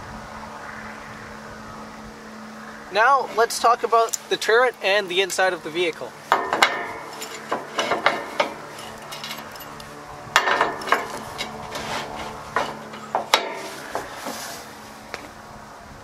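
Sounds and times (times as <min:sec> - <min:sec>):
sharp metal knocks ringing: 0:06.3 - 0:14.2
metal clinks and scraping: 0:06.3 - 0:14.8.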